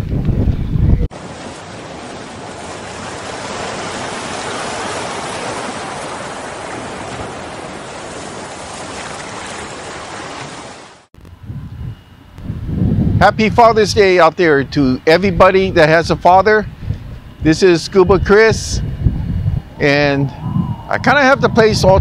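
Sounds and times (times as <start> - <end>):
steady rushing noise: 0.0 - 14.3.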